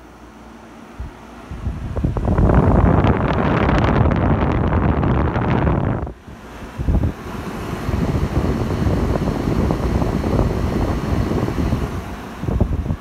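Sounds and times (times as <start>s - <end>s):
air conditioner running: 0.0s - 13.0s
wind rumble on microphone: 1.0s - 13.0s.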